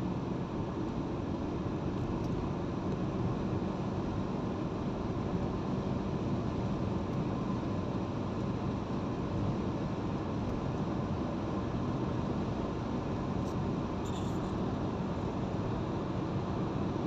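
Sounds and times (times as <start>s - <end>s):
car cabin tyre and engine rumble: 0.0s - 17.0s.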